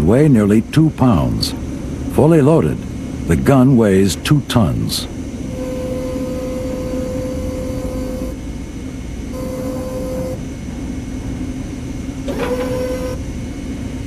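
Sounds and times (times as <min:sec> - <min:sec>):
mechanical rumble: 0:00.0 - 0:14.0
steady whine: 0:00.0 - 0:14.0.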